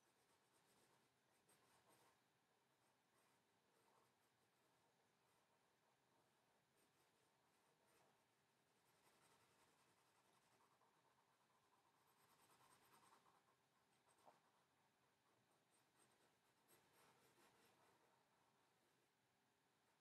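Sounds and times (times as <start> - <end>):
pencil scratching on paper: 6.7 - 18.6.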